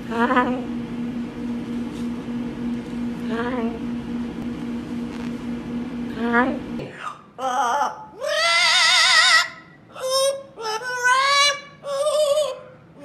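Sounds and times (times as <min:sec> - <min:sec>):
parrot singing with vibrato: 0:07.0 - 0:12.7.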